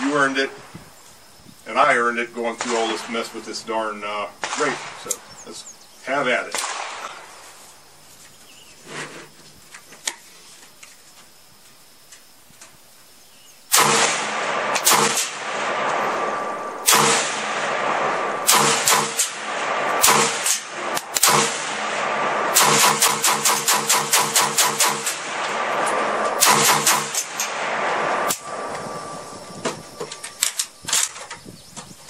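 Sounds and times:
rifle gunshots: 0:02.4 - 0:05.4, 0:06.3 - 0:07.4, 0:13.7 - 0:29.4.

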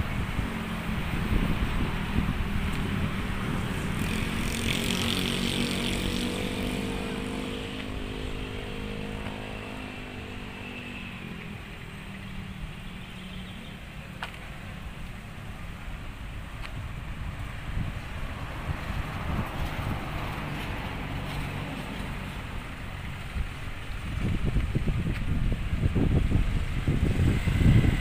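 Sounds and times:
passing vehicle engine hum: 0:00.0 - 0:28.0
traffic rumble: 0:00.0 - 0:28.0.

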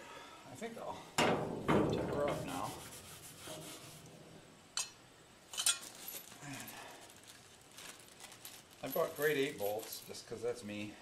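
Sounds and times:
metal hardware clinks: 0:04.8 - 0:06.4, 0:08.8 - 0:10.3.

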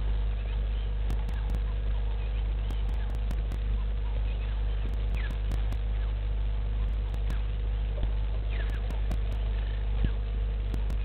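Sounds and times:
steady low hum: 0:00.0 - 0:11.0
sharp clicks: 0:01.1 - 0:01.6, 0:02.7 - 0:03.6, 0:04.9 - 0:05.8, 0:06.9 - 0:07.4, 0:08.7 - 0:09.4, 0:10.7 - 0:11.0.

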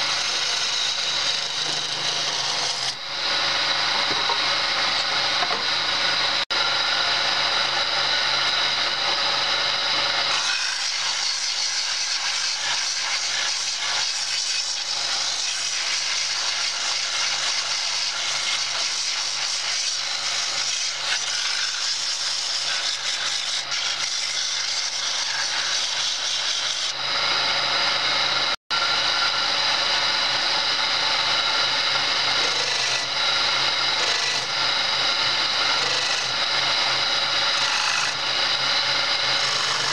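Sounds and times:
electric motor humming: 0:00.0 - 0:13.4, 0:26.6 - 0:39.9
chisel scraping spinning wood: 0:00.0 - 0:39.9.

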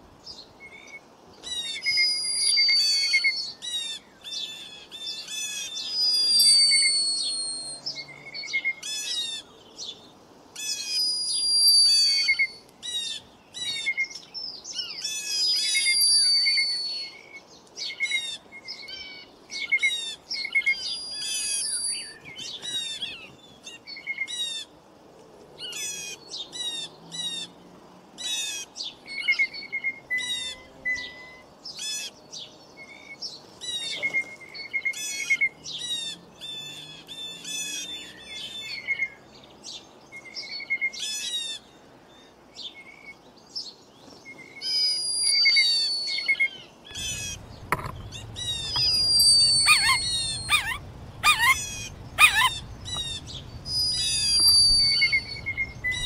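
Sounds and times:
songbirds chirping and trilling: 0:00.0 - 0:56.0
low rumble: 0:47.0 - 0:56.0
long falling whistle: 0:48.1 - 0:51.7, 0:53.7 - 0:56.0.

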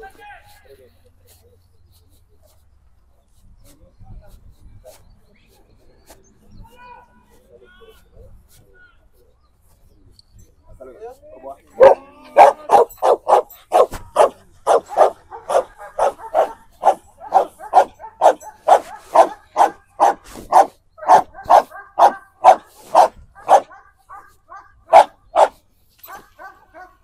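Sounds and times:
dog barking: 0:11.8 - 0:27.0.

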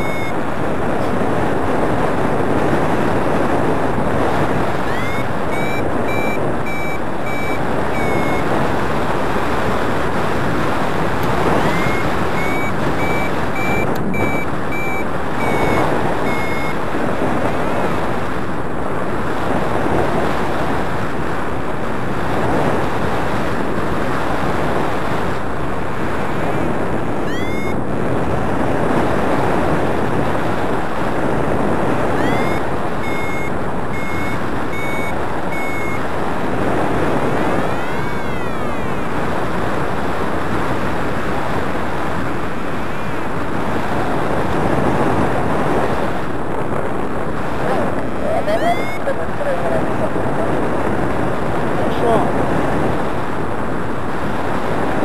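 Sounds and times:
variometer short high beeps: 0:00.0 - 0:00.4, 0:04.8 - 0:08.5, 0:11.2 - 0:16.8, 0:27.2 - 0:27.8, 0:32.2 - 0:36.1, 0:37.5 - 0:39.0, 0:48.3 - 0:49.1
wind rushing over microphone: 0:00.0 - 0:55.0.

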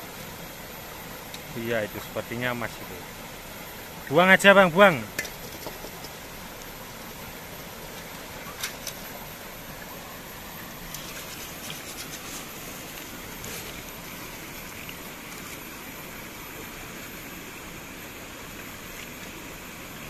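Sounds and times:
shallow stream running: 0:00.0 - 0:20.0
sand scraping in a metal wok: 0:11.0 - 0:12.7.

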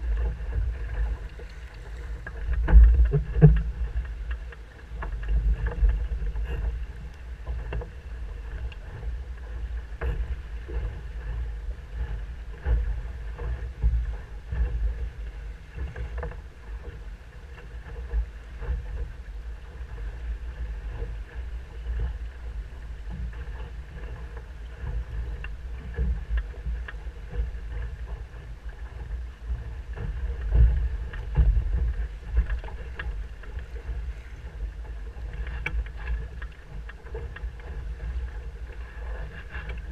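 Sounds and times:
water slapping against hull: 0:00.0 - 0:39.9
wind buffeting microphone: 0:00.0 - 0:39.9.

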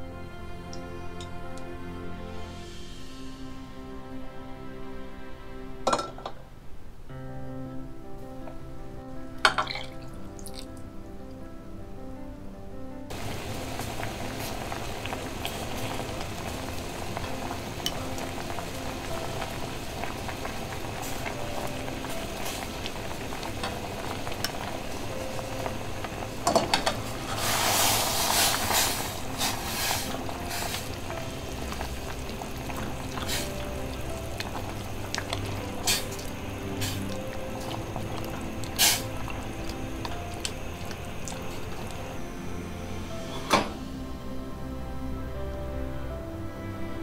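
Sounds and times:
liquid boiling in a saucepan: 0:13.1 - 0:42.7.

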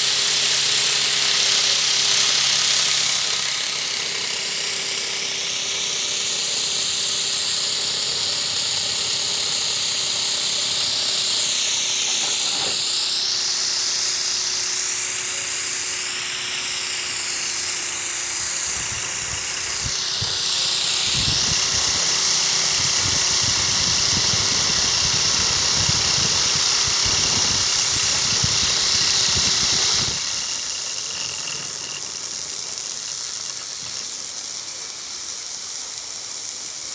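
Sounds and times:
steady hum: 0:00.0 - 0:35.6
steam hissing: 0:00.0 - 0:36.9
turbine high whine: 0:00.0 - 0:36.9.

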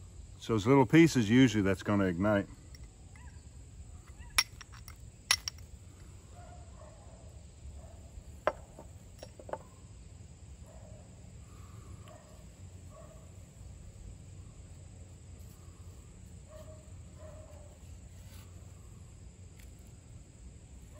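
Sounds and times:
flint striking steel: 0:04.1 - 0:05.7, 0:08.4 - 0:09.7.

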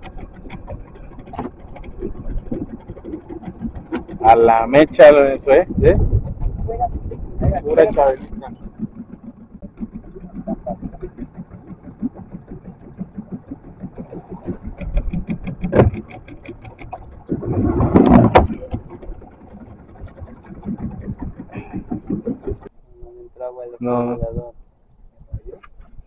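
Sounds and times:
small engine running: 0:00.0 - 0:22.7.

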